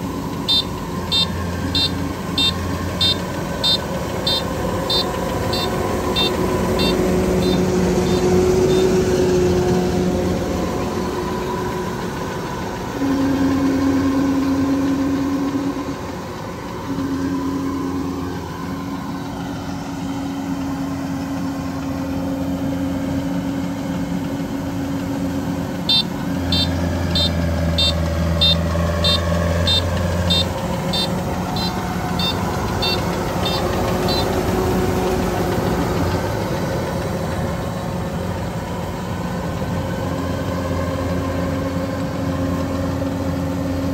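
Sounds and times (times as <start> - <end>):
combine harvester running: 0.0 - 43.9
short high beeps: 0.5 - 8.9, 25.9 - 34.3.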